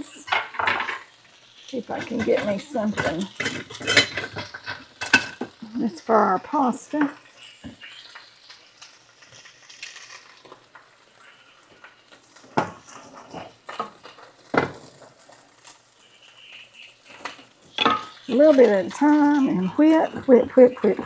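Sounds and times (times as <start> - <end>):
food sizzling in pans: 0.0 - 21.0
utensil knocking on pans: 1.8 - 5.6, 12.5 - 15.1, 17.1 - 21.0.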